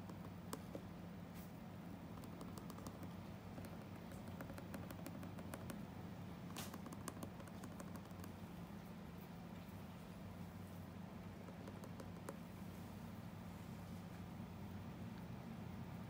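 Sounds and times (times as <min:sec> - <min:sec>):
pencil tapping and scratching on paper: 0:00.0 - 0:00.9, 0:02.1 - 0:08.4, 0:11.4 - 0:12.5
low steady hum: 0:00.0 - 0:16.0.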